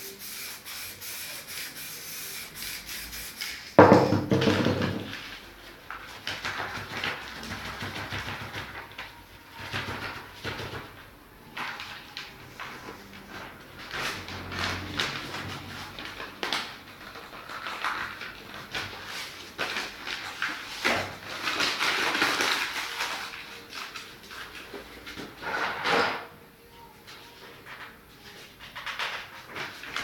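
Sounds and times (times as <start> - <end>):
paper rustling and scraping: 11.6 - 26.1, 27.1 - 30.0.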